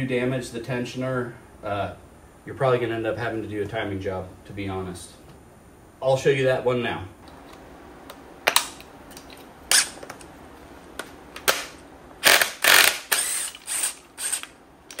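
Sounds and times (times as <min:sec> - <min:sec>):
impact driver bursts: 0:11.4 - 0:15.0
sharp metal clicks: 0:11.4 - 0:15.0.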